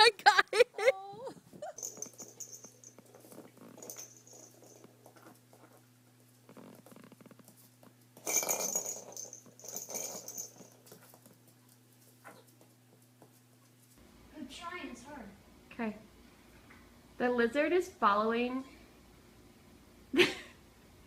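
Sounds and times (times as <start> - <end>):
puppy scuffling with toys: 1.8 - 14.0.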